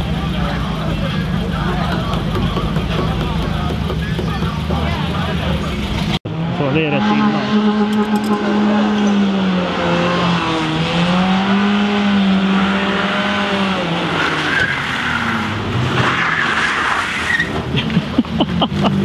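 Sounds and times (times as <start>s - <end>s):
car engine revving: 0.0s - 19.0s
tyres squealing on tarmac: 14.0s - 17.7s.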